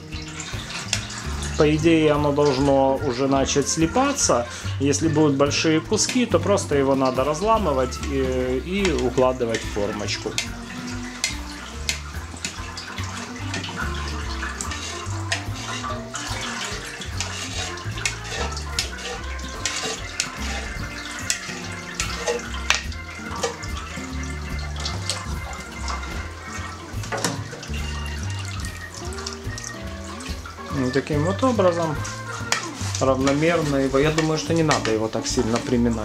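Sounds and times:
background music: 0:00.0 - 0:36.0
whey splashing and trickling: 0:00.0 - 0:36.0
plastic ladle clicking on mould: 0:08.8 - 0:26.1.

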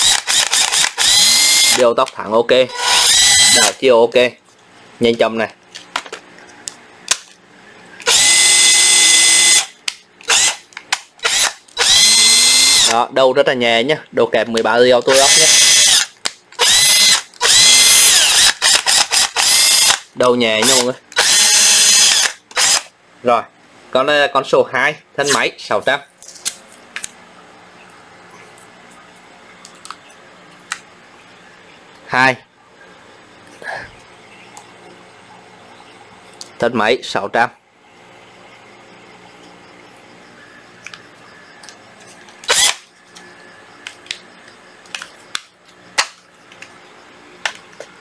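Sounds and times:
cordless drill motor whining: 0:00.0 - 0:01.8, 0:02.7 - 0:03.8, 0:08.0 - 0:10.6, 0:11.2 - 0:13.0, 0:15.1 - 0:20.0, 0:20.6 - 0:22.9, 0:42.4 - 0:42.8
drill trigger blips: 0:00.0 - 0:01.8, 0:02.7 - 0:03.8, 0:08.0 - 0:10.6, 0:11.2 - 0:13.0, 0:15.0 - 0:22.9, 0:42.4 - 0:42.8
low room hum: 0:00.0 - 0:48.0.

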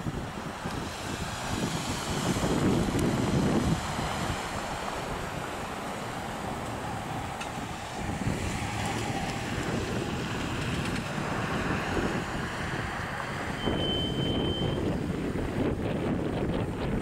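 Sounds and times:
distant road traffic: 0:00.0 - 0:17.0
wind on microphone: 0:00.0 - 0:17.0
short high steady tone: 0:13.6 - 0:14.8.

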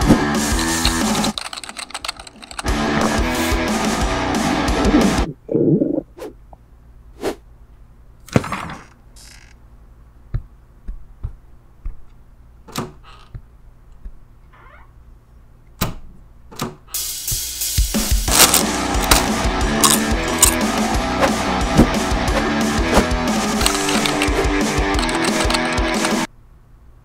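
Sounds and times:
thumps and knocks: 0:10.2 - 0:14.2, 0:21.2 - 0:26.3.

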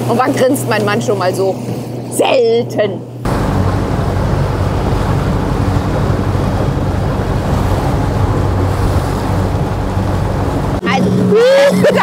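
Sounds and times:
motorboat engine drone: 0:00.0 - 0:12.0
wind buffeting microphone: 0:00.0 - 0:12.0
rushing water: 0:03.3 - 0:12.0.

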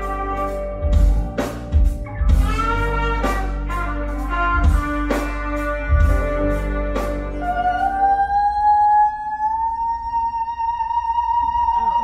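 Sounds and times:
jazz band playing: 0:00.0 - 0:08.5.

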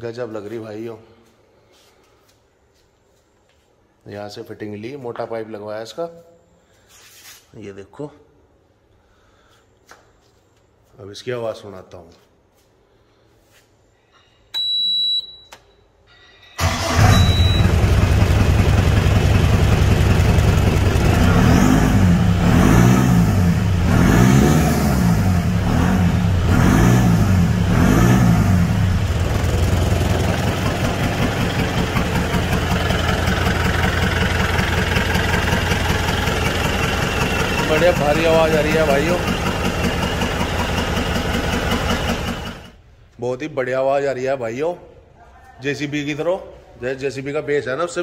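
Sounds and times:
jeep engine revving and idling: 0:17.0 - 0:42.7.

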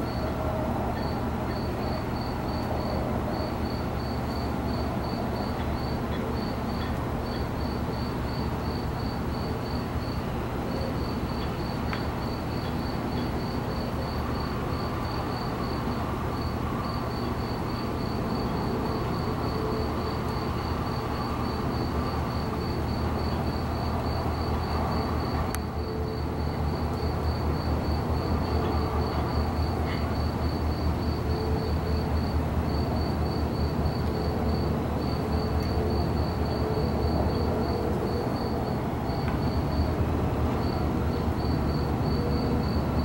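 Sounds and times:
insect chirping: 0:00.9 - 0:38.5, 0:40.6 - 0:43.0.

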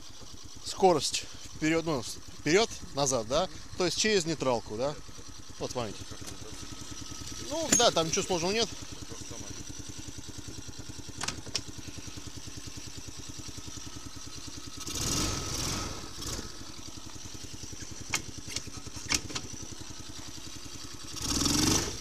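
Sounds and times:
small engine idling: 0:00.0 - 0:22.0.

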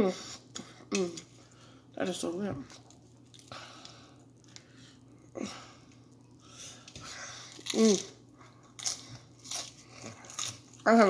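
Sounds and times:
chip crunching while chewed: 0:07.4 - 0:11.0.

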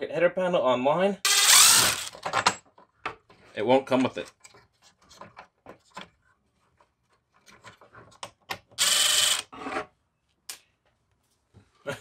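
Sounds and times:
cordless power driver whirring: 0:01.3 - 0:02.1, 0:08.8 - 0:09.5.

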